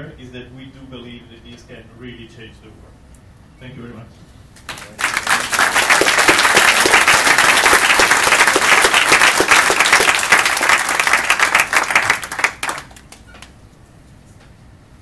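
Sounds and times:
audience applauding: 4.6 - 13.5.

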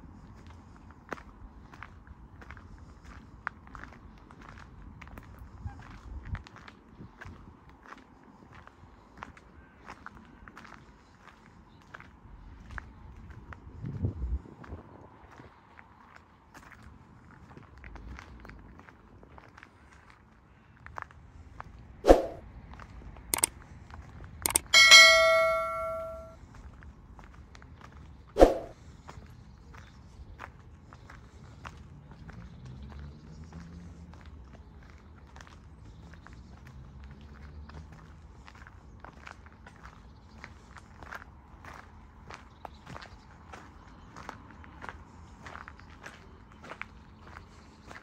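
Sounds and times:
bell chime: 24.5 - 26.3
mouse clicks: 24.5 - 26.3.

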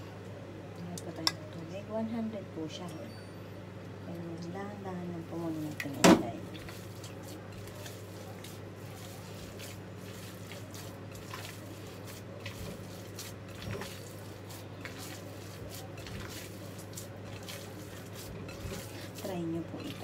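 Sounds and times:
hands squelching wet meat: 5.6 - 20.0.

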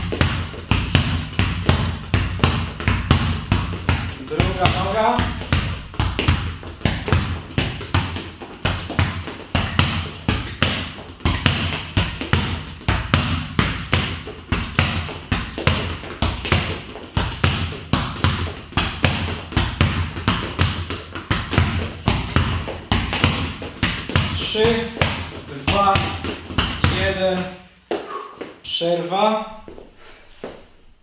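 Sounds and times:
football thudding against wall: 0.0 - 27.4.

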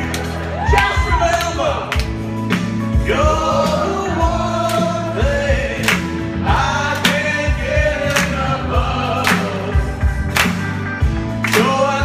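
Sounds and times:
backing track with drum beat: 0.0 - 12.0
men singing a pop song: 2.9 - 10.3, 11.4 - 12.0.

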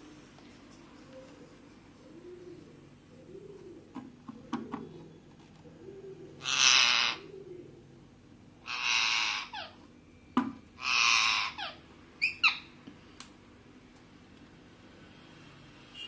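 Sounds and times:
parakeet cooing: 1.0 - 9.9, 10.8 - 12.7
parakeet harsh rasping call: 6.4 - 7.3, 8.6 - 9.8, 10.8 - 12.7.

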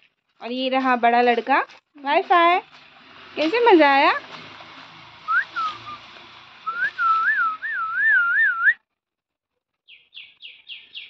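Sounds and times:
whistle swoops and warbles: 6.7 - 8.8
bird chirping: 9.8 - 11.0.

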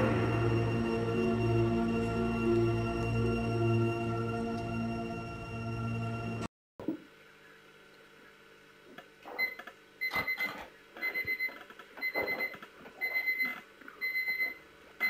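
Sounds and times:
alarm clock beeping: 9.4 - 14.6.

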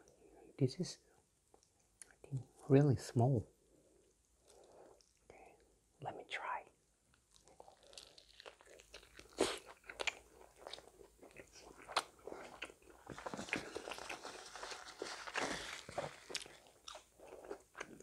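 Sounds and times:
person chewing crunchy food: 7.2 - 18.0.

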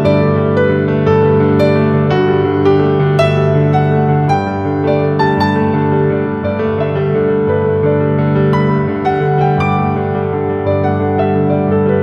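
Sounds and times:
soft piano piece: 0.0 - 12.0.

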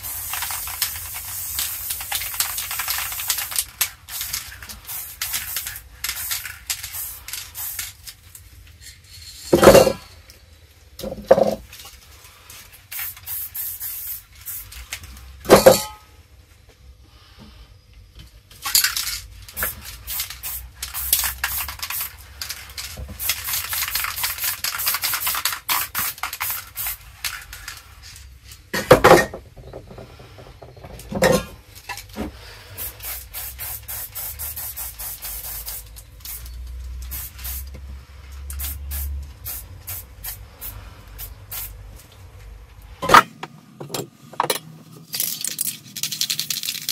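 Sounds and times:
spray paint can hissing: 0.0 - 8.2, 12.8 - 15.1, 18.8 - 27.8, 32.8 - 37.8, 38.4 - 41.9, 45.2 - 46.9.

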